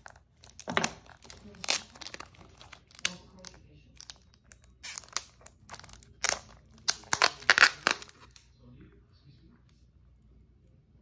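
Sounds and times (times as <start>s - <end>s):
plastic and packing material crinkling: 0.0s - 8.4s.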